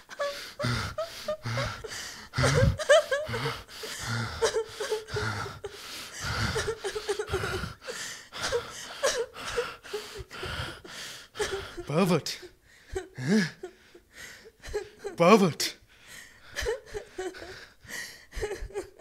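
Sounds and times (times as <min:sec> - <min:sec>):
man laughing: 0:00.0 - 0:07.7, 0:11.4 - 0:13.9.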